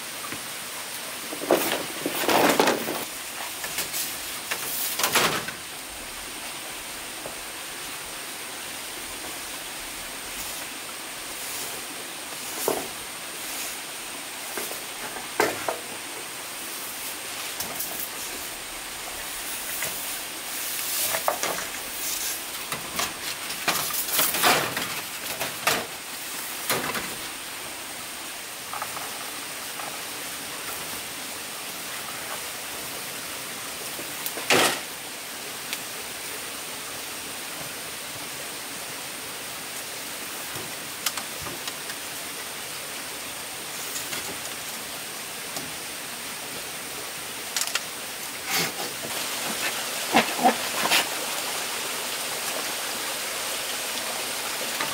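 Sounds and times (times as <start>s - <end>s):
background hiss: 0.0s - 54.9s
sharp knocks and clatter: 1.3s - 3.1s, 14.6s - 15.9s, 22.7s - 25.9s.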